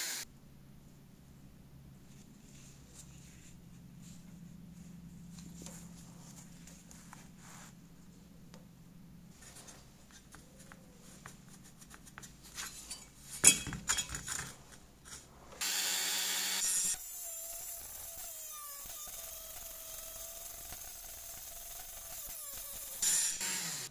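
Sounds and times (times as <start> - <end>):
rotary tool whining: 0.0 - 0.2, 15.6 - 23.9
metal parts clattering down: 12.7 - 14.6.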